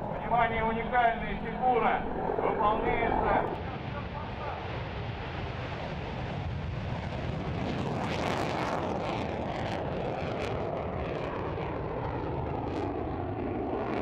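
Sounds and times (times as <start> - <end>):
aircraft flying over: 0.0 - 14.0.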